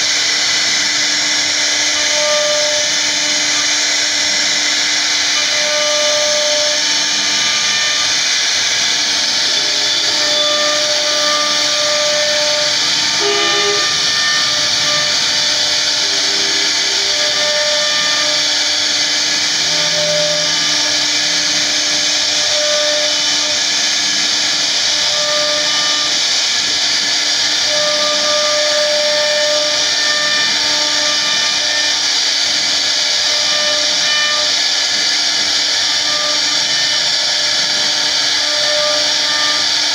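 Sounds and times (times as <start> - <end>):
router bit whirring cutting wood: 0.0 - 39.9
short tones: 13.1 - 15.2.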